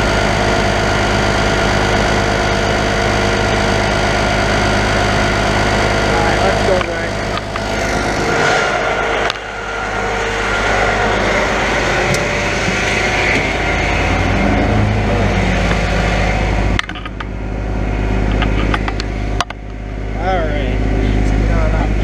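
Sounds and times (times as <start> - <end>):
truck engine humming: 0.0 - 22.0.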